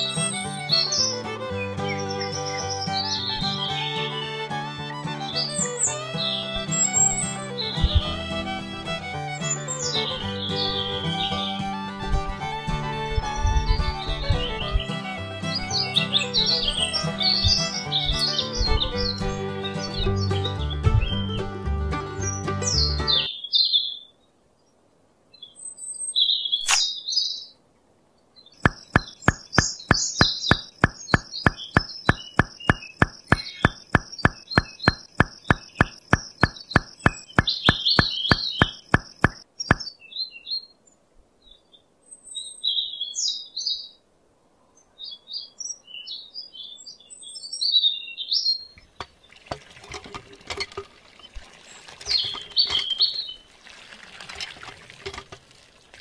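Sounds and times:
small birds chirping: 0.0s - 21.5s, 22.2s - 27.6s, 28.2s - 44.0s, 44.7s - 49.7s, 51.0s - 53.5s
rapid even clicking: 28.6s - 39.8s.

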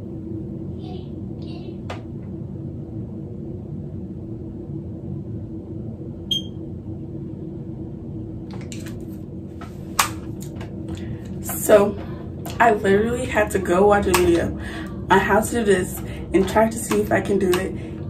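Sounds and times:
steady low hum: 0.0s - 18.0s
short high beep: 6.3s - 6.5s.

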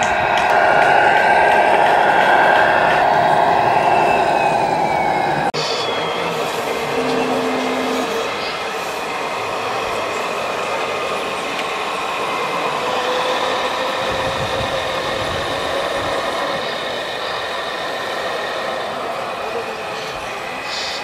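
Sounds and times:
higher whine: 0.0s - 8.7s.

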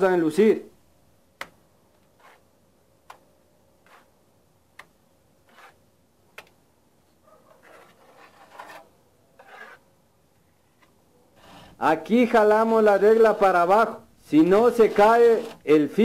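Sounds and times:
trowel scraping mortar: 2.2s - 2.5s, 3.8s - 4.2s, 5.4s - 5.8s, 7.6s - 9.9s, 13.1s - 13.8s, 14.4s - 16.0s.

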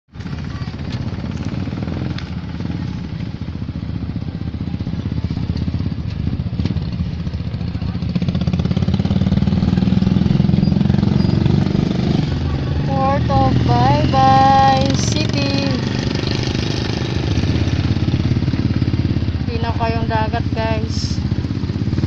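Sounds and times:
engine humming: 5.2s - 22.0s.

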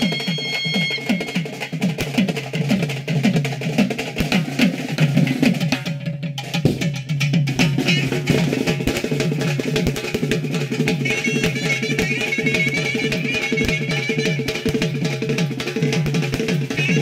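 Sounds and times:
held melody note: 0.0s - 1.8s, 11.1s - 14.8s, 16.8s - 17.0s
two-headed hand drum beating fast: 0.0s - 17.0s.

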